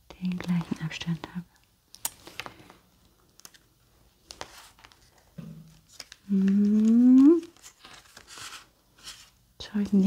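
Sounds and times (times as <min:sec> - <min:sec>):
card stock rustling: 0:04.2 - 0:10.0
woman humming: 0:06.3 - 0:07.5.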